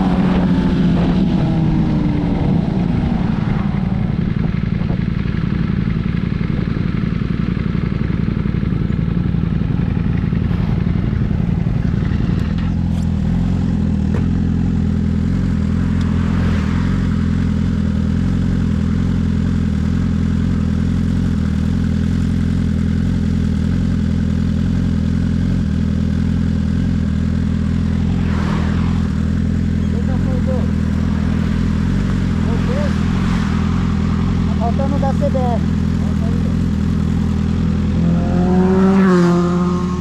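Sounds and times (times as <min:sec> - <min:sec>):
motorcycle engine running: 0:00.0 - 0:40.0
rushes of noise: 0:15.3 - 0:18.4, 0:27.5 - 0:40.0.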